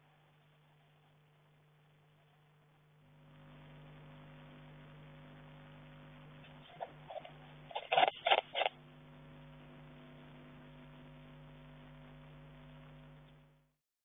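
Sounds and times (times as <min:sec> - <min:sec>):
electrical hum of camera: 0:00.0 - 0:13.7
animal commotion noises: 0:06.6 - 0:08.8.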